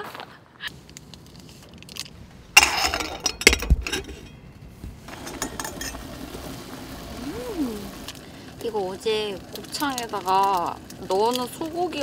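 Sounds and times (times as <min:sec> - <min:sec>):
metal pot lid clinking: 0:02.6 - 0:04.4, 0:05.1 - 0:06.0.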